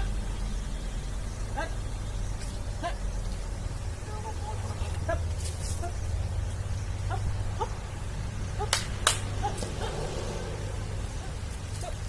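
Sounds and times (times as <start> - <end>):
steady low rumble: 0.0 - 12.0
sharp cracks: 8.6 - 9.8.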